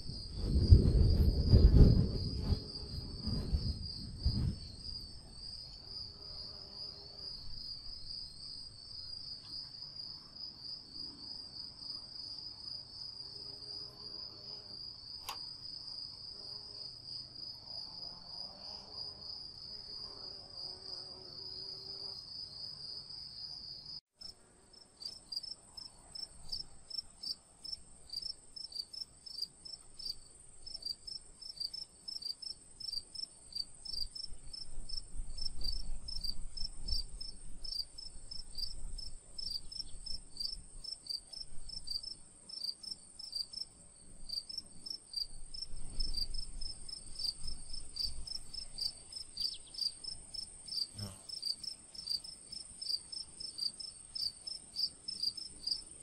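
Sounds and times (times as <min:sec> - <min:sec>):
insects chirping: 0:25.0 - 0:56.0.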